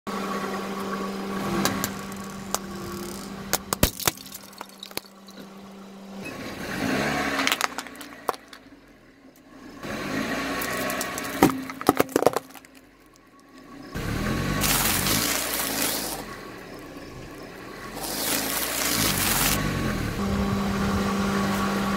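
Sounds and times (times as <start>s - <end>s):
tyre crushing small objects: 1.6s - 5.5s, 7.2s - 8.7s, 10.6s - 13.6s, 14.4s - 19.6s
car engine revving lightly: 5.3s - 11.4s, 12.9s - 21.9s
rice cakes crunching: 10.6s - 11.4s, 14.4s - 19.6s.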